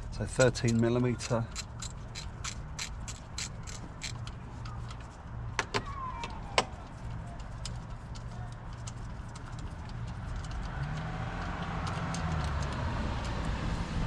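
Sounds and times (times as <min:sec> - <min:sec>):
socket ratchet clicking: 0:00.3 - 0:05.0, 0:07.4 - 0:13.4.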